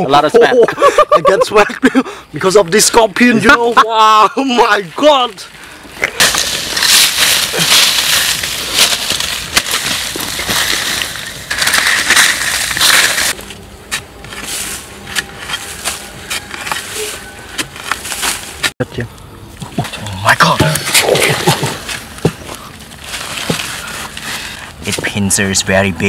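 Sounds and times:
blade digging sandy soil: 6.2 - 18.7.

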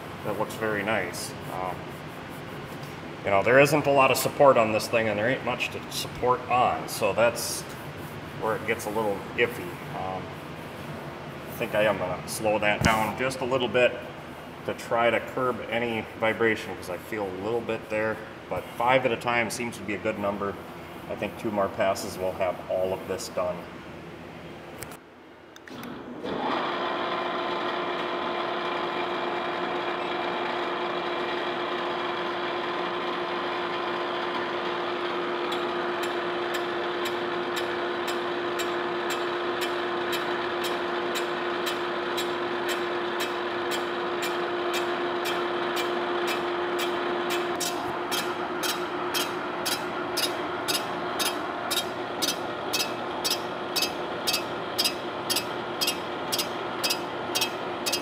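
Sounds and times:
boring mill gear whine: 25.8 - 58.0
fly cutter ticking on metal: 35.5 - 58.0.

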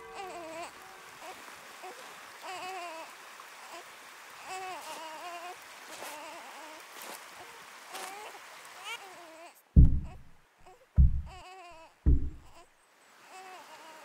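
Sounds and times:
baby crying: 0.0 - 6.8, 8.0 - 9.6, 10.6 - 12.6, 13.3 - 14.0
faint steady hiss: 0.0 - 14.0.

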